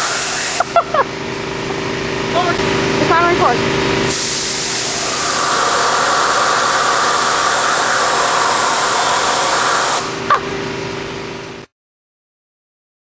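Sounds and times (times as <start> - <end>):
compressed air hissing: 0.0 - 0.9, 4.1 - 10.3.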